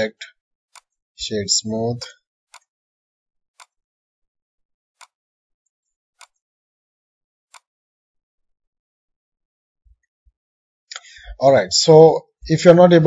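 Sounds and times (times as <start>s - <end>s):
computer mouse clicks: 3.6s - 3.8s, 5.0s - 5.2s, 6.2s - 6.4s.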